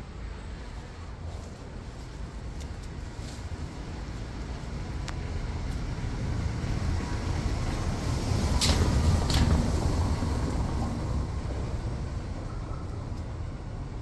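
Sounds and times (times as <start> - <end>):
outdoor background rumble: 0.0 - 14.0.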